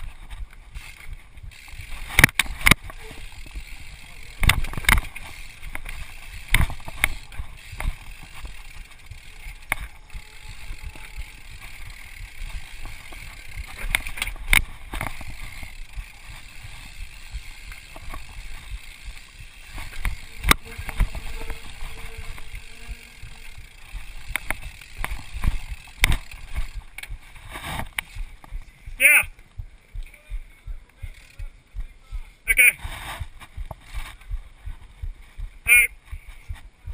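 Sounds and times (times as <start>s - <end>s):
mountain bike rattling over rocks: 0.0s - 28.7s
tyres rumbling on trail: 0.0s - 36.9s.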